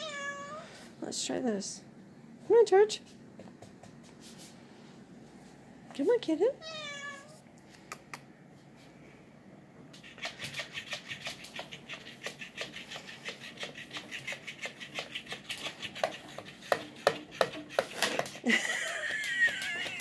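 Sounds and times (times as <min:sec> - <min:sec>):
toy fish slapping wooden floor: 0:10.0 - 0:20.0.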